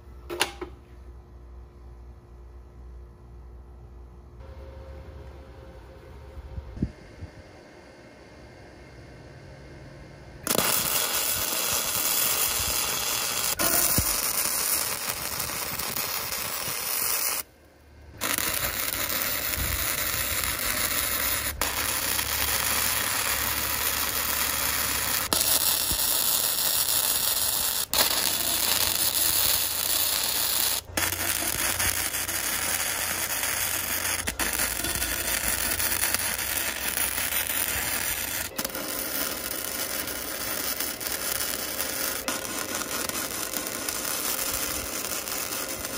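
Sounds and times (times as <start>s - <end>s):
welding arc crackling: 10.4s - 17.5s, 18.1s - 45.9s.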